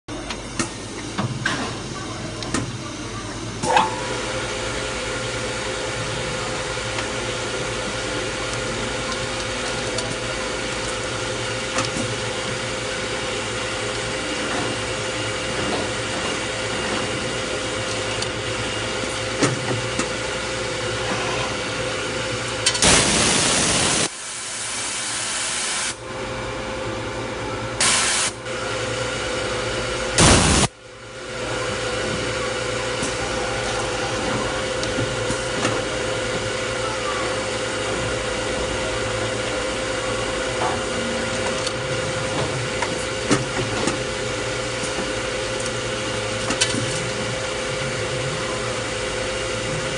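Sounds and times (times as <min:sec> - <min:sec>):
machine hum with steady tone: 0:00.1 - 0:49.9
loud burst of hiss: 0:22.8 - 0:26.0, 0:27.8 - 0:28.4, 0:30.2 - 0:30.7.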